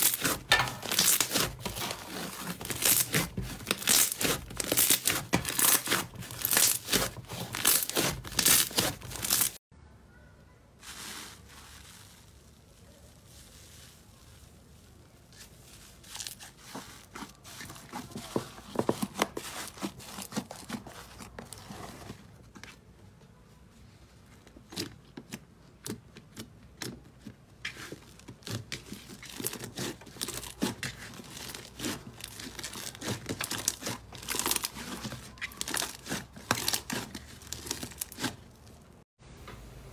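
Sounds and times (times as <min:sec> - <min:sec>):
slime crackling and popping: 0:00.0 - 0:09.6, 0:28.4 - 0:38.9.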